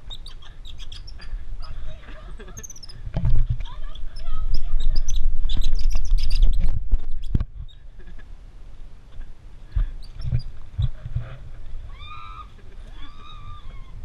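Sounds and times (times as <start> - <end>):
high chirps and squeaks: 0.0 - 1.8, 2.4 - 7.8, 10.0 - 10.6
low rumble on microphone: 0.0 - 14.0.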